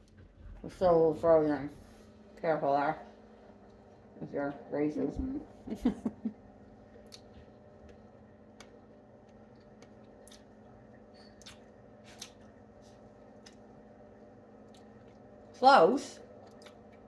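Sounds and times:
steady low hum: 0.0s - 17.0s
people chewing crunchy cookie: 6.8s - 15.5s, 16.2s - 17.0s.

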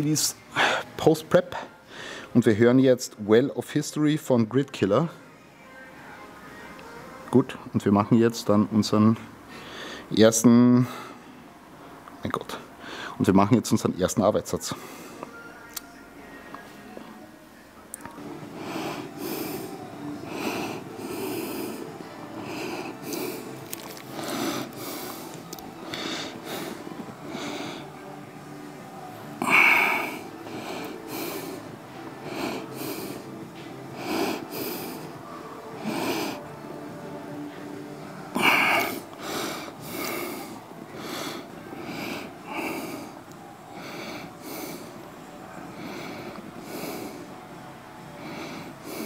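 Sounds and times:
man breathing hard: 1.8s - 2.4s, 9.5s - 10.1s, 12.8s - 13.2s, 18.2s - 28.2s, 29.4s - 36.6s, 38.1s - 45.1s, 45.7s - 47.4s, 48.1s - 49.0s.

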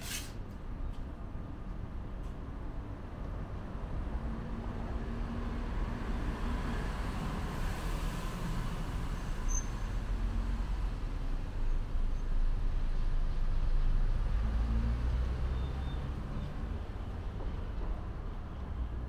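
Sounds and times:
street traffic rumble: 0.0s - 19.0s
vehicle passing by: 14.1s - 17.0s.

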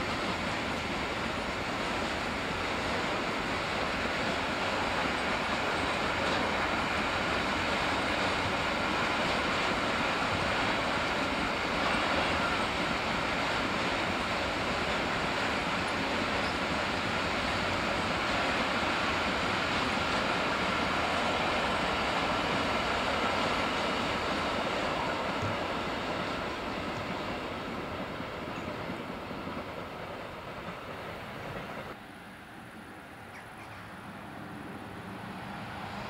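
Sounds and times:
freight train rolling past: 0.0s - 36.0s.

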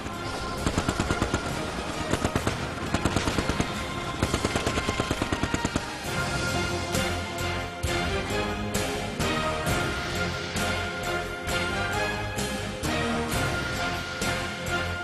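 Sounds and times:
background music: 0.0s - 15.0s
machine-gun fire: 0.1s - 6.2s.

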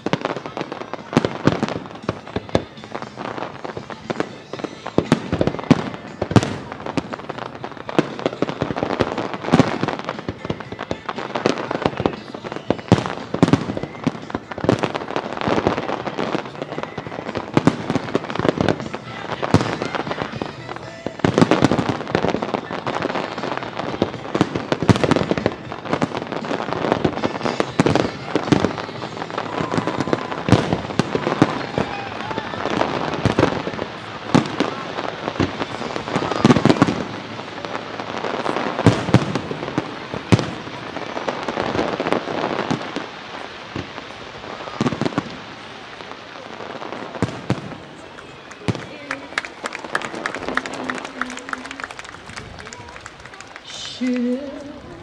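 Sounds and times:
fireworks bursting and crackling: 0.0s - 55.0s.

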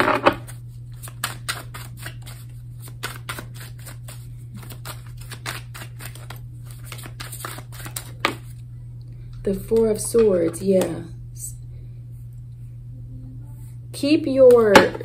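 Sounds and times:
cards being shuffled: 0.2s - 8.6s.

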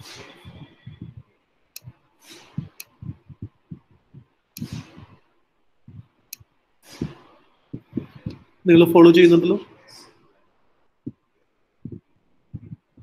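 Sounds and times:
soft thumps on microphone: 0.5s - 1.3s, 11.9s - 13.0s
person breathing: 2.2s - 5.2s, 6.8s - 8.5s
sharp clicks: 4.6s - 5.1s.

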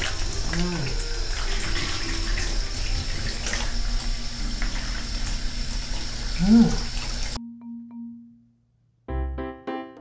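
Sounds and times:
shower water running: 0.0s - 7.4s.

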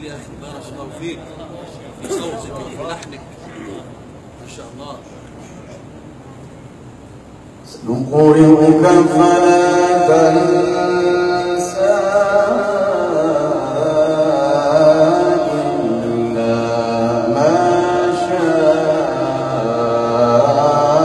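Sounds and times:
man reciting melodically: 7.6s - 21.0s.

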